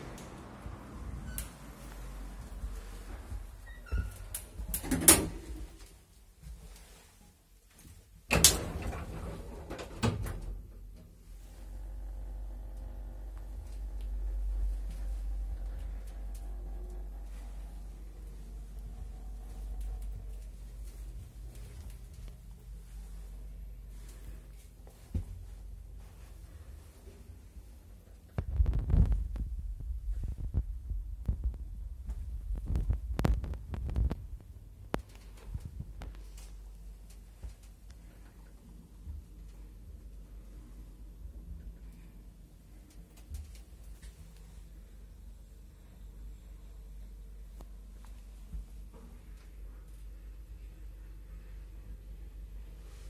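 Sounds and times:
elevator rumble: 0.0 - 5.8, 8.3 - 36.0.

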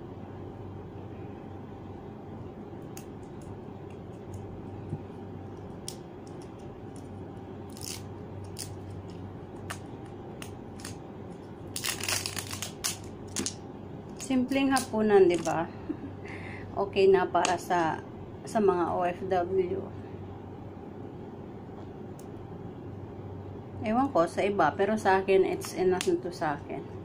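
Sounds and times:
low room hum: 0.0 - 27.0
plastic packet crinkling: 7.7 - 11.0, 11.7 - 15.6.

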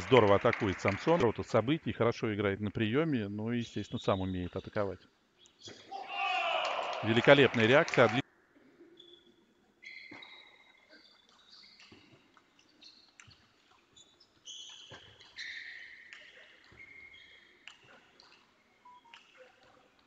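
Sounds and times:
shoes squeaking on floor: 9.0 - 18.0.

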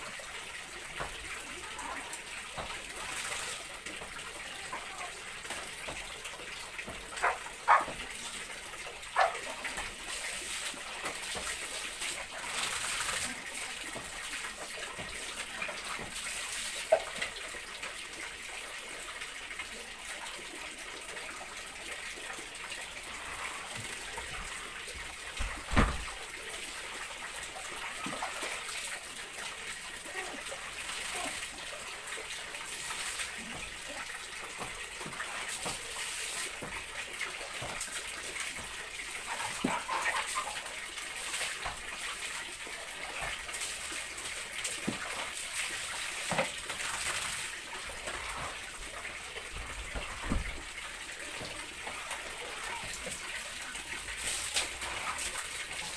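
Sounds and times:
water splashing on tiled floor: 0.8 - 18.1, 30.0 - 55.9.

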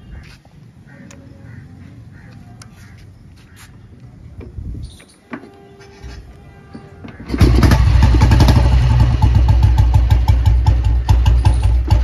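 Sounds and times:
motorcycle engine starting and running: 7.0 - 12.0.

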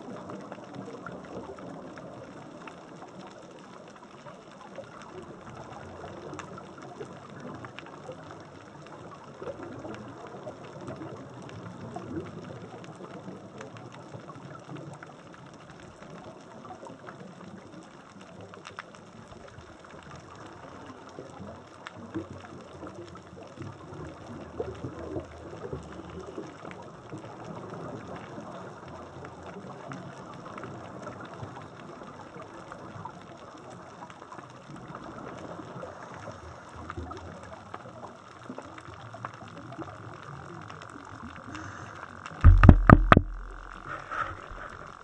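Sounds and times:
faint clicks and crackles: 0.0 - 45.0
muffled underwater rushing: 40.6 - 45.0.

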